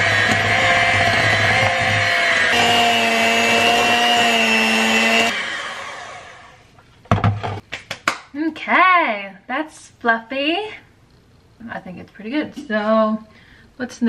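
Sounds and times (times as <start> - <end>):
electric hand mixer running: 0.0 - 6.7.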